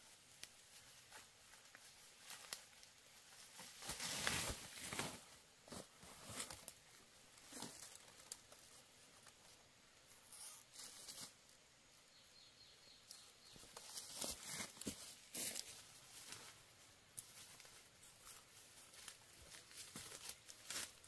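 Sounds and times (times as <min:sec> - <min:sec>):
light clicks and crackles: 0:00.3 - 0:03.8.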